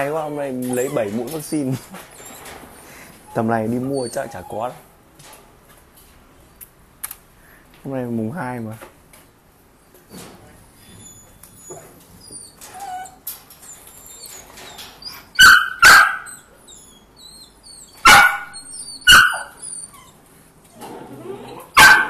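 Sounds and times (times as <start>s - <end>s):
dog barking: 15.4s - 16.4s, 18.0s - 19.5s, 21.8s - 22.0s.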